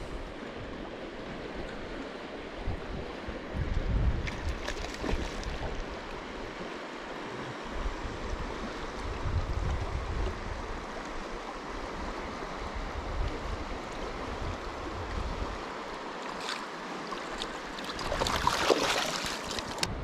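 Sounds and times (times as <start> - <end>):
river current rushing: 10.4 - 19.9
water splashing: 16.2 - 19.9.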